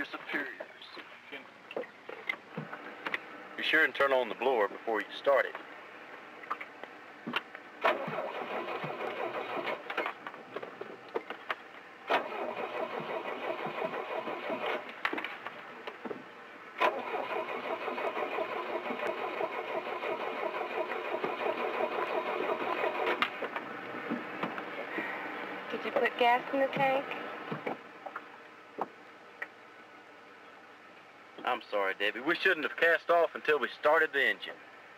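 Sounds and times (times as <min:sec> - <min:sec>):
engine starter cranking: 0:07.8 - 0:10.2, 0:12.1 - 0:14.9, 0:16.8 - 0:23.4.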